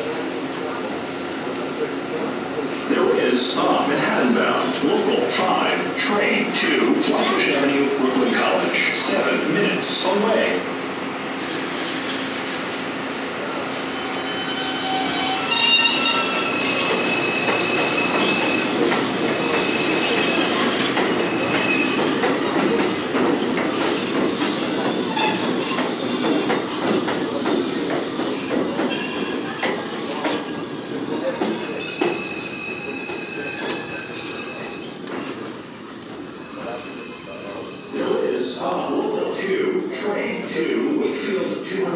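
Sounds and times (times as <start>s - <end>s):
train wheels rumbling on rails: 0.0s - 41.9s
high-pitched wheel squeals: 14.0s - 18.7s, 31.2s - 34.9s, 36.5s - 38.0s.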